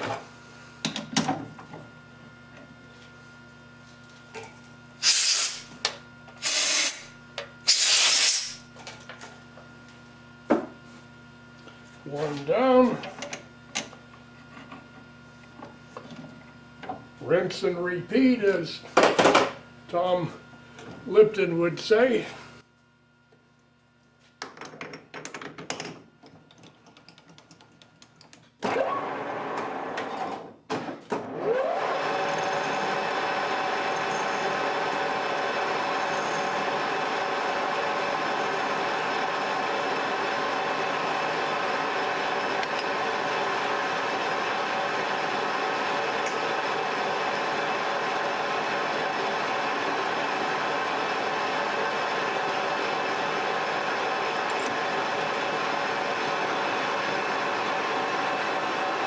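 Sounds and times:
spray can hissing: 0:05.0 - 0:05.6, 0:06.4 - 0:07.0, 0:07.7 - 0:08.6
lathe motor whine: 0:28.6 - 0:30.5, 0:31.2 - 0:59.0.

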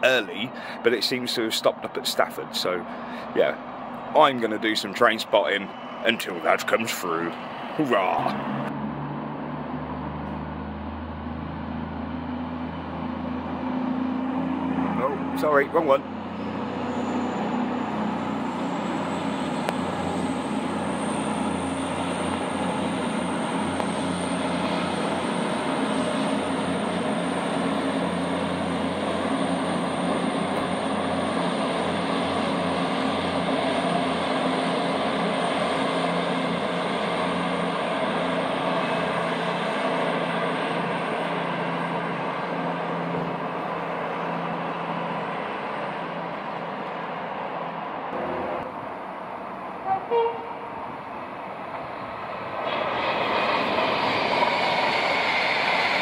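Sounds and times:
train rumble: 0:00.0 - 0:56.0
thin high whine: 0:03.4 - 0:08.7, 0:14.9 - 0:40.2.

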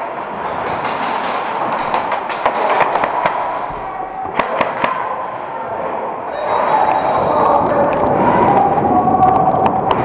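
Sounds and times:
airsoft guns firing: 0:04.3 - 0:05.1.

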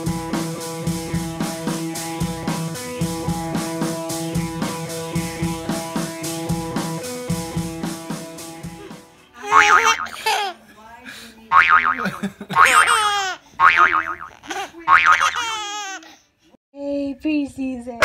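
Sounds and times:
steady drum beat: 0:00.0 - 0:09.9.

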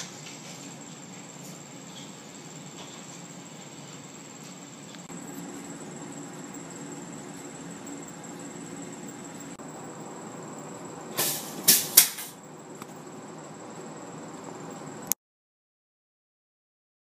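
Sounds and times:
faint high whine: 0:00.0 - 0:15.2
curtain rod clattering down: 0:11.2 - 0:12.4.

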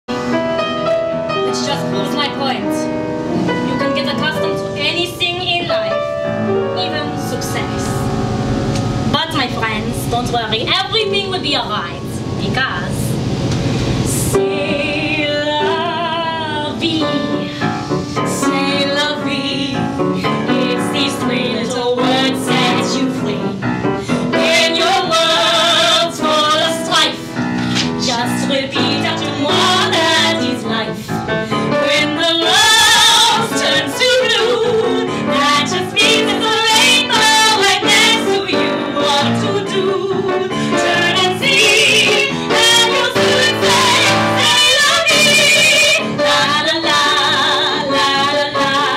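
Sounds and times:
grand piano: 0:00.1 - 0:48.9
women singing with vibrato: 0:14.1 - 0:48.9.

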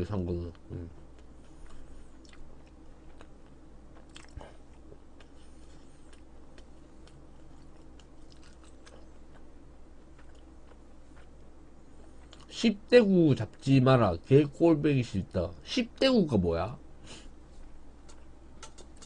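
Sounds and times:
person chewing: 0:00.7 - 0:12.5.

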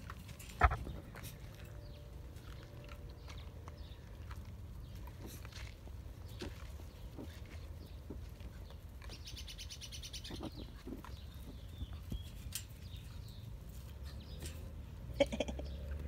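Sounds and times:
small bird chirping: 0:06.2 - 0:14.7.

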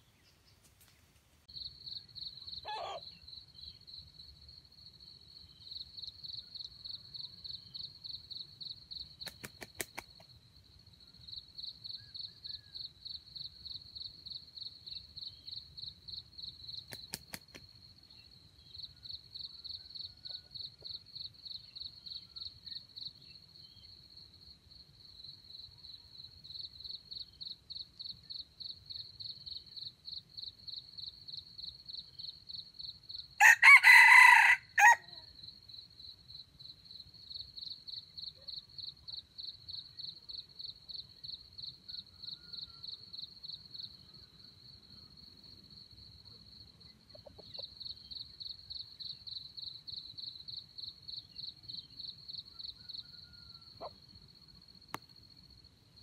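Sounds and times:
insect chirping: 0:00.0 - 0:56.0.

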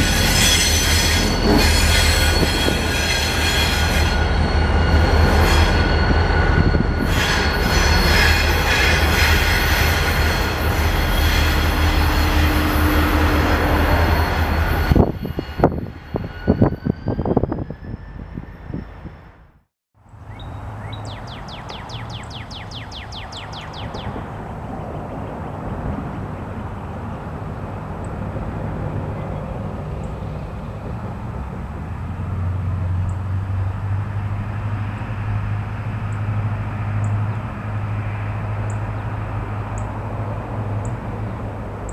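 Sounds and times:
wheels squealing: 0:00.0 - 0:19.3
diesel locomotive engine rumble: 0:00.0 - 0:19.7, 0:20.6 - 0:41.9
distant train diesel engine: 0:00.0 - 0:41.9.

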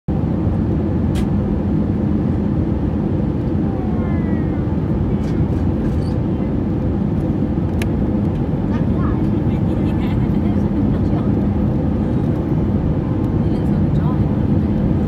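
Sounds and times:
jet engines rumbling in cabin: 0:00.1 - 0:15.0
sharp click: 0:01.1 - 0:01.3.

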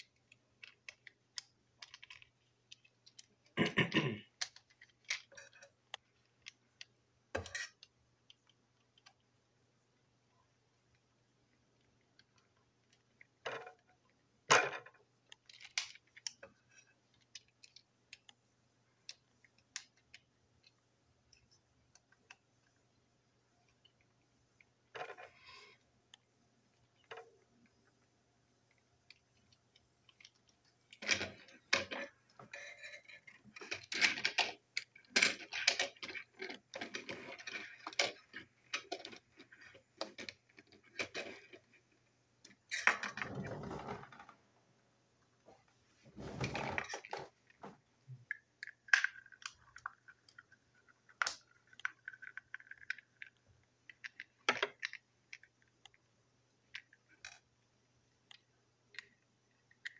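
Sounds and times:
plastic parts clicking and clattering: 0:00.0 - 0:03.6, 0:04.3 - 0:09.2, 0:11.8 - 0:18.4, 0:28.7 - 0:44.4, 0:46.2 - 0:56.0, 0:58.2 - 0:59.9
rustling scrapes: 0:45.9 - 0:47.2.

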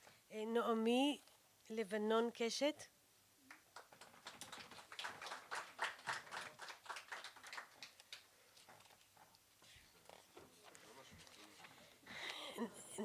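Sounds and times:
light applause: 0:03.5 - 0:08.8.

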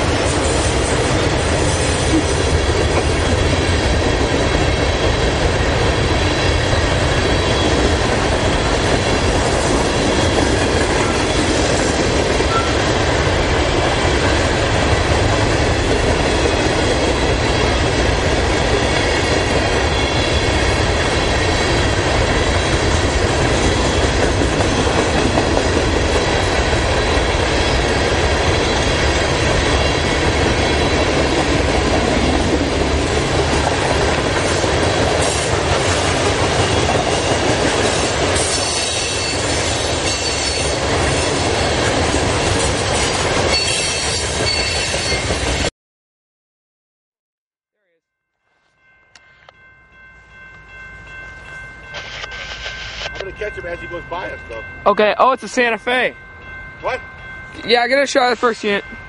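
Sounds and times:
freight train wheels rolling on rail: 0:00.0 - 0:45.7.

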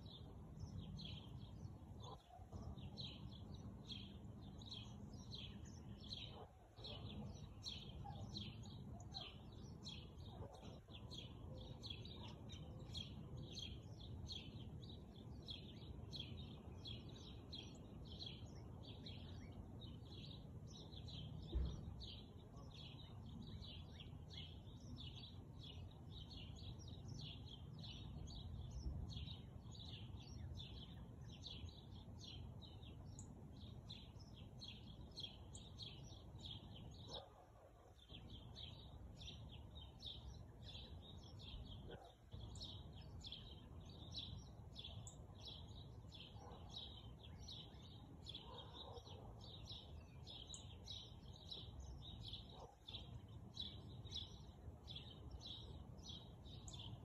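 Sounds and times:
small birds chirping: 0:00.0 - 0:57.0
thump: 0:21.5 - 0:22.0.

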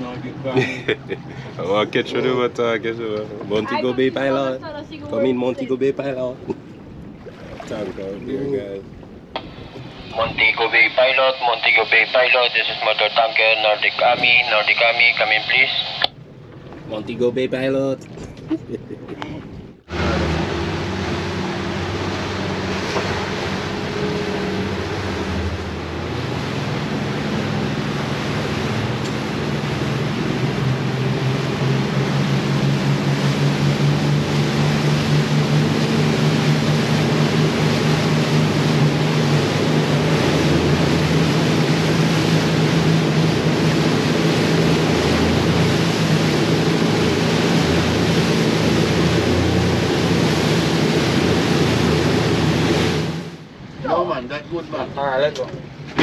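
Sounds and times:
outboard motors running: 0:00.0 - 0:18.5, 0:19.3 - 0:56.0
rushing wind and water: 0:00.0 - 0:18.5, 0:19.4 - 0:56.0.

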